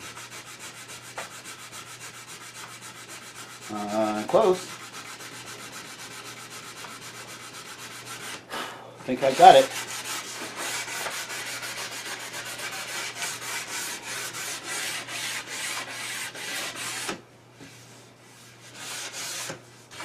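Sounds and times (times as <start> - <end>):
sandpaper rubbing on wood: 0.0 - 8.4, 9.2 - 17.2, 18.6 - 20.0.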